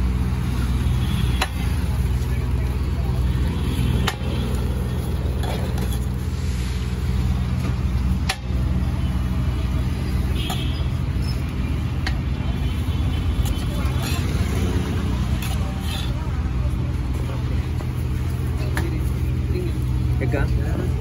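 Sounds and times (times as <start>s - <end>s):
traffic engine hum: 0.0s - 21.0s.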